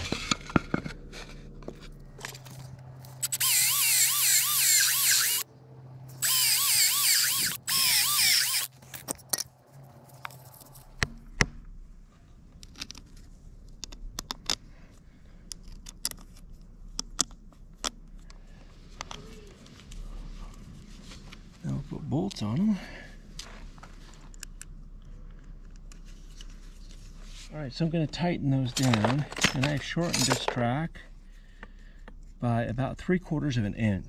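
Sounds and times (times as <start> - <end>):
cordless drill whining: 3.2 - 5.4, 6.2 - 8.7.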